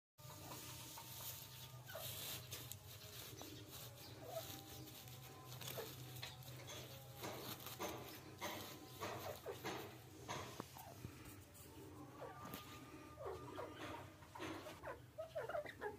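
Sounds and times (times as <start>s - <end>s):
hand rustling through dry grass: 0.3s - 11.8s.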